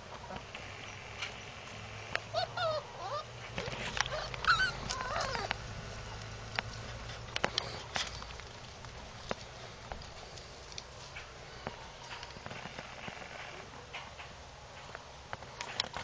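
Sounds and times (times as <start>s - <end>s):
puppy whimpering: 2.3s - 5.6s.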